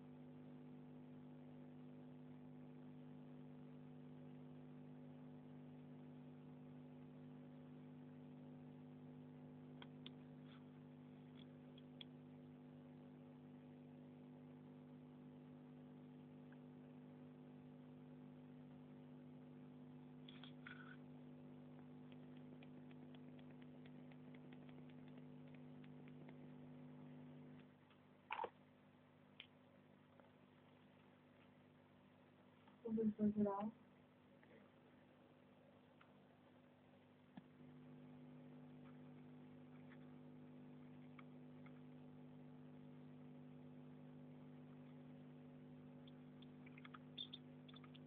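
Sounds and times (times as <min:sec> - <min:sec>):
low electrical hum: 0:00.0 - 0:48.0
faint ticks: 0:21.7 - 0:28.5, 0:46.0 - 0:48.0.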